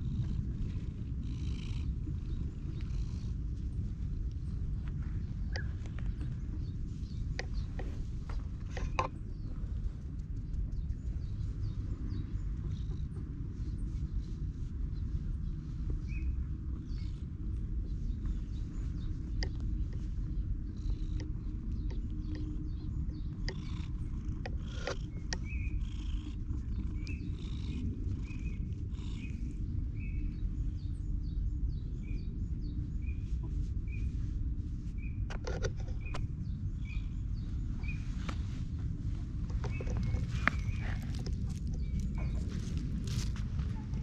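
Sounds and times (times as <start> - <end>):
cat purring: 0.0 - 30.9, 36.8 - 44.0
bird chirping: 20.6 - 33.2
hands rustling in fur: 37.8 - 44.0.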